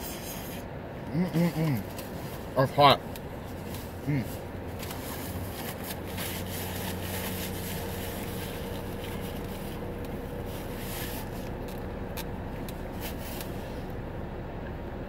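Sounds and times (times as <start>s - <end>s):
car engine idling: 0.0s - 15.0s
paper napkin rustling: 3.4s - 11.9s, 12.6s - 13.8s.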